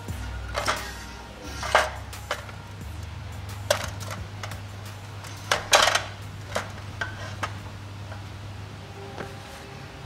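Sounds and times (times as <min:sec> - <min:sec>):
metal engine parts clanking: 0:00.0 - 0:02.8, 0:03.6 - 0:08.3.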